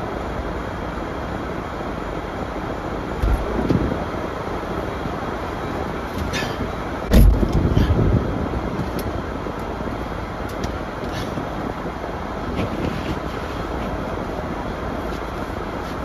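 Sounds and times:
car interior rumble: 2.3s - 16.0s
heavy low thump: 7.1s - 9.0s.

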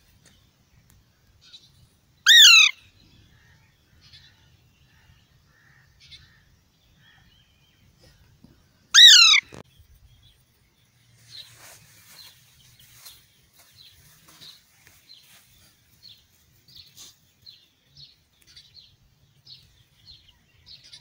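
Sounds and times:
parakeet harsh squawks: 2.3s - 2.8s, 9.0s - 9.6s.

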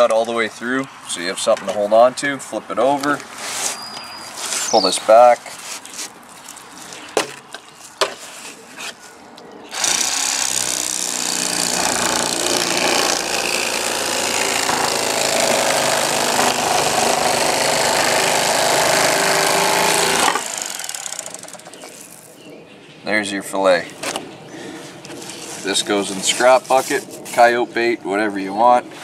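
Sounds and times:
electric knife buzzing: 9.7s - 21.7s.

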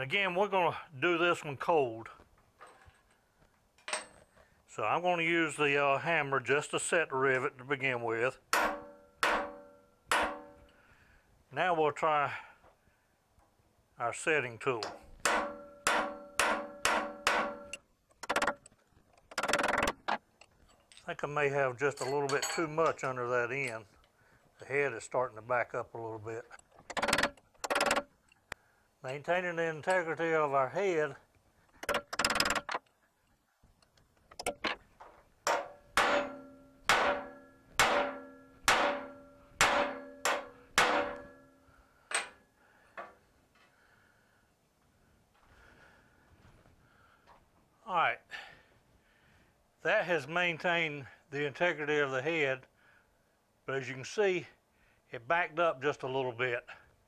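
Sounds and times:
hammer ringing on metal: 8.5s - 10.6s, 14.8s - 17.8s, 35.5s - 41.6s.

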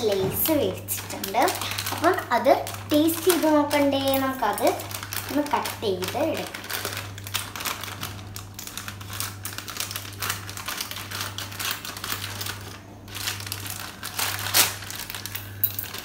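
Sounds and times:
foil packet crinkling: 0.0s - 16.0s.

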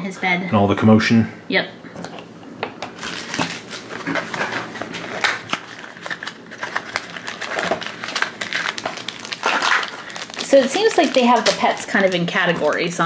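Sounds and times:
packaging crackling: 2.0s - 13.0s
cardboard pack tearing: 3.0s - 12.2s.

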